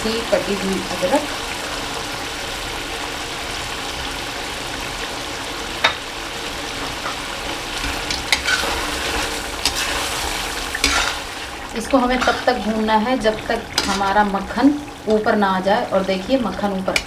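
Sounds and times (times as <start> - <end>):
gravy sizzling in a pan: 0.0 - 17.0
metal spatula scraping a pan: 7.8 - 12.7, 13.7 - 14.3.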